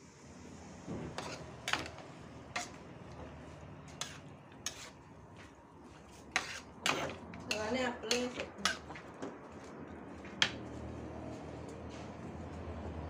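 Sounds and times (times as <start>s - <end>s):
metal spatula scraping a wok: 1.0s - 2.8s, 3.9s - 5.0s, 6.0s - 9.0s.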